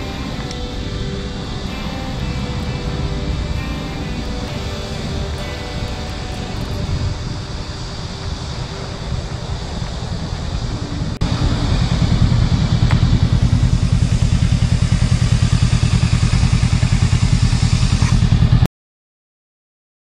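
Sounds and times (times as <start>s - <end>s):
motorcycle engine idling: 0.0s - 18.7s.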